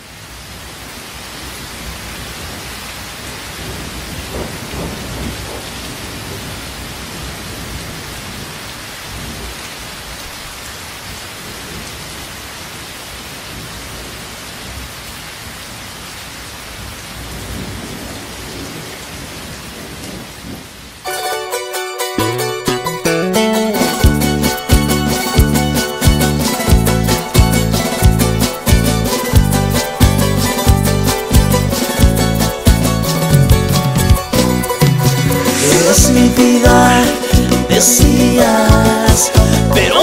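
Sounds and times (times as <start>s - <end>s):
heavy rain: 0.0s - 40.0s
thunder rumbling: 1.9s - 9.6s, 23.8s - 38.2s.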